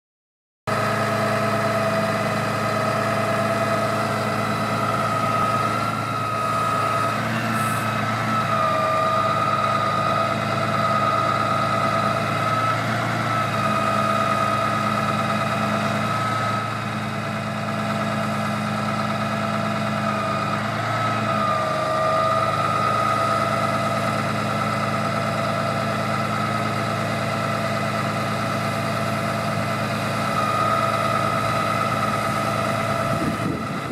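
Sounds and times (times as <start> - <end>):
diesel truck engine running: 0.7 - 33.9
high hydraulic whine: 1.9 - 15.2.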